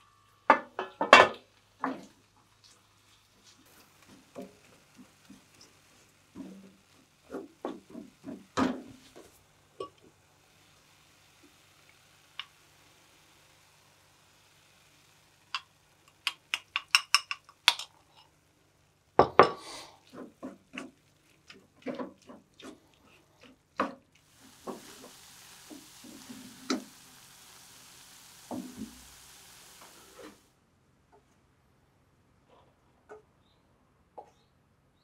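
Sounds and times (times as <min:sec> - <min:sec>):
meat sizzling: 0:00.0 - 0:30.5
wooden spatula scraping a skillet: 0:01.8 - 0:10.1, 0:19.2 - 0:30.5.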